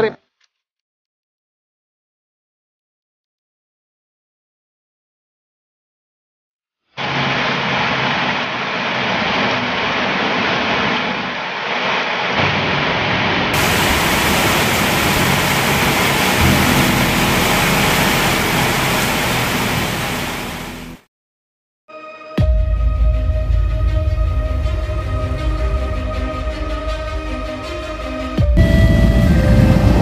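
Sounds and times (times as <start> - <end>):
heavy rain pouring: 7.0 - 21.0, 28.6 - 30.0.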